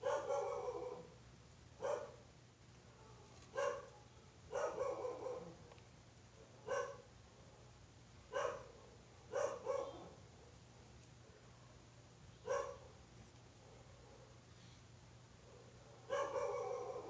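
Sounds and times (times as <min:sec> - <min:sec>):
dog barking: 0:00.0 - 0:01.1, 0:01.8 - 0:02.2, 0:02.9 - 0:05.6, 0:06.4 - 0:07.7, 0:08.3 - 0:10.6, 0:12.4 - 0:13.0, 0:13.6 - 0:14.4, 0:15.4 - 0:17.0.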